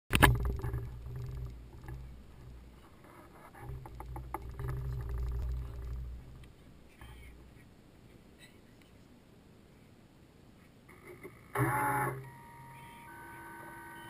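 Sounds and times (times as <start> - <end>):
water ticking against hull: 0.1 - 2.7, 3.6 - 6.6.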